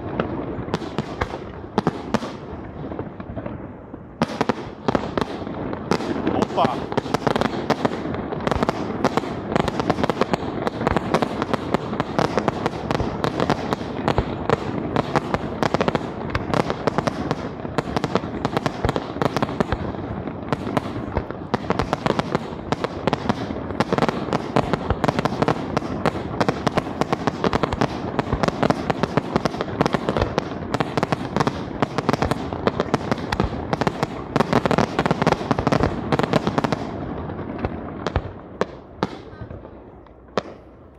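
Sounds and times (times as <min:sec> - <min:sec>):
fireworks bursting: 0:00.0 - 0:40.9.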